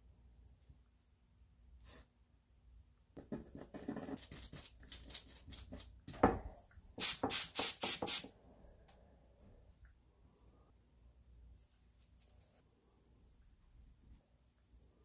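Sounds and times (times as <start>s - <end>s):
aerosol spray can hissing: 7.0s - 8.3s.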